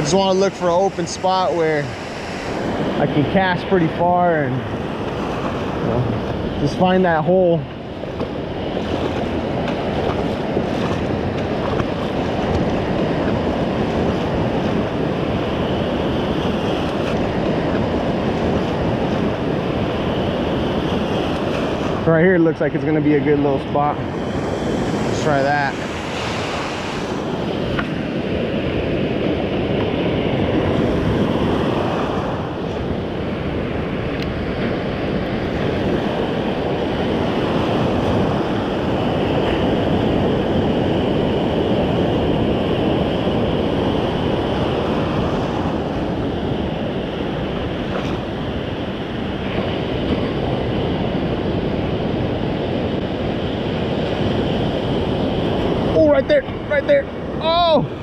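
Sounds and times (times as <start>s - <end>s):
ocean surf breaking: 0.0s - 58.0s
wind buffeting microphone: 0.0s - 58.0s.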